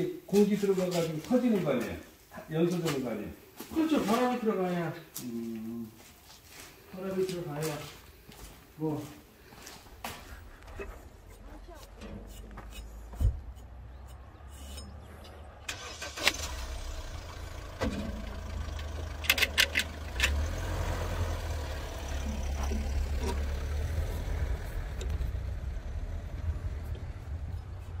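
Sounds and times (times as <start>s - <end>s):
steady low rumble: 21.8s - 28.0s.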